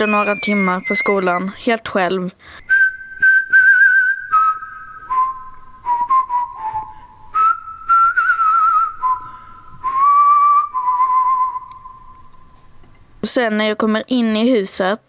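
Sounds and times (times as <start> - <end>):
person whistling a slow tune: 0.0 - 1.5, 2.5 - 12.6.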